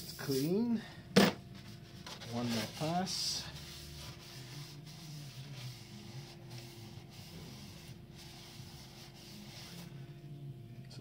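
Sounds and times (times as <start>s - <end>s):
low steady hum: 0.0s - 11.0s
paper towel rubbing in metal bore: 1.6s - 10.0s.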